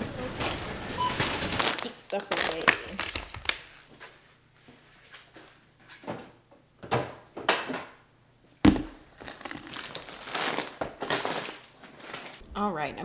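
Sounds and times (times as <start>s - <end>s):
rustling of groceries: 0.0s - 6.0s, 8.7s - 12.4s
plastic tub set on countertop: 8.6s - 9.1s.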